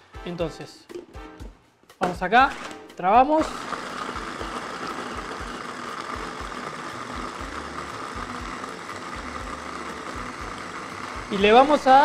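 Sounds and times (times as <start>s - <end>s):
food processor running: 2.5s - 12.0s.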